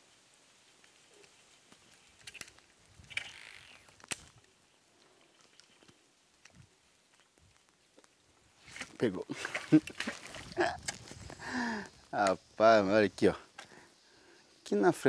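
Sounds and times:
splashy rustle: 8.6 - 11.4.

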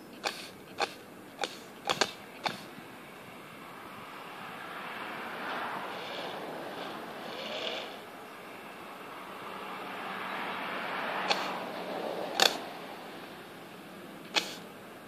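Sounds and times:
steady hiss: 0.0 - 9.9, 11.2 - 15.0
sharp pops of model guns: 12.4 - 12.6, 14.3 - 14.6.

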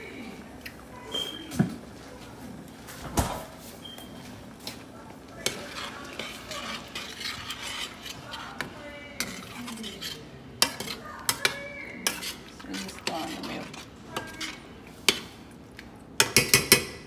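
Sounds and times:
utensil scraping saucepan: 3.8 - 15.4.

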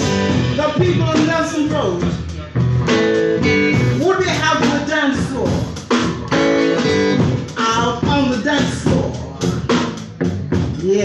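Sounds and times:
blues band playing: 0.0 - 11.0
electric guitar with bending notes: 0.0 - 11.0.

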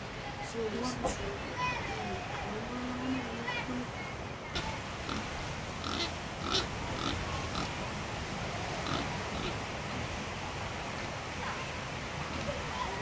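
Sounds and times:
outdoor background noise: 0.0 - 13.0
short animal calls: 4.6 - 7.7, 8.8 - 9.6.

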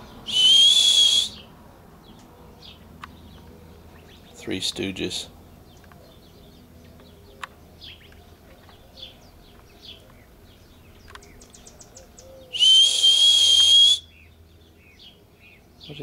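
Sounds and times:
person whistling a long note: 0.3 - 1.4, 12.5 - 14.1.

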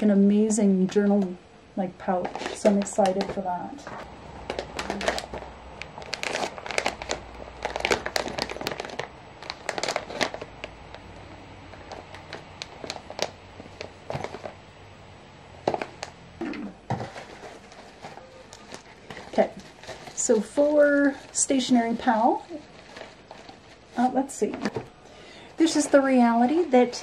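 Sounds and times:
plastic packaging crinkling: 2.0 - 14.6, 15.6 - 16.2, 16.9 - 27.0.

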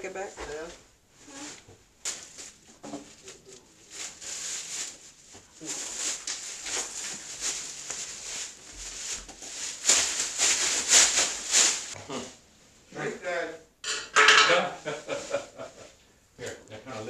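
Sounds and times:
plastic bags rustling: 1.3 - 12.0.

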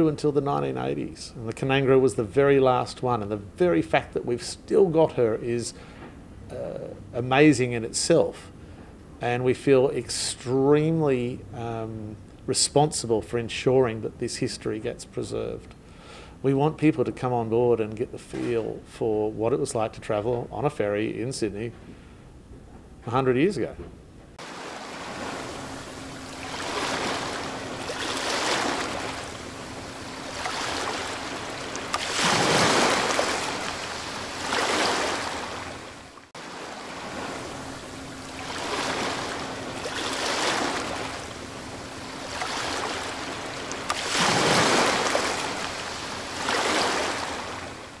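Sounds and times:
faint steady hum: 0.0 - 48.0
water waves washing: 24.4 - 48.0.

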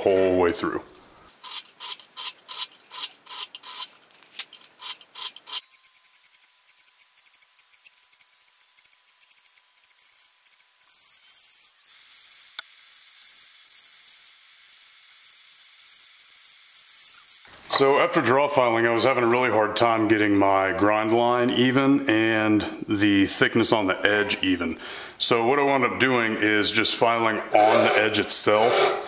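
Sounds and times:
hand file rasping on steel: 27.6 - 29.0.

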